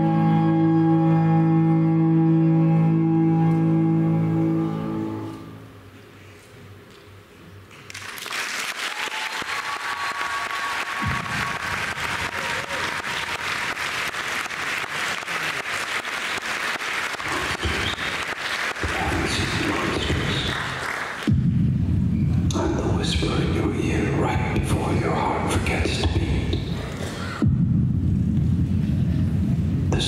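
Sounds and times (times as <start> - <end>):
audience applauding: 7.7 - 21.3.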